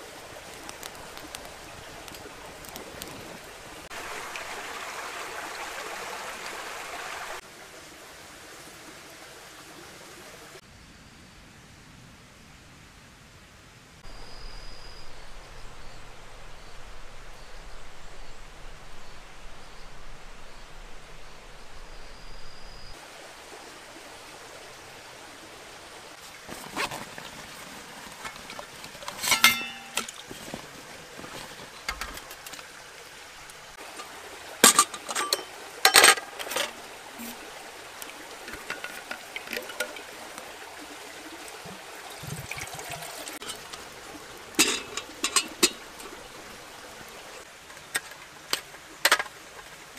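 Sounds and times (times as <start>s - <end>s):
faint steady hiss: 0.0s - 49.9s
camp gear clacking and knocking: 26.4s - 32.8s, 33.8s - 37.4s, 38.0s - 40.2s, 42.5s - 43.9s, 44.5s - 46.4s, 47.4s - 49.8s
water pouring into kettle: 33.8s - 46.8s.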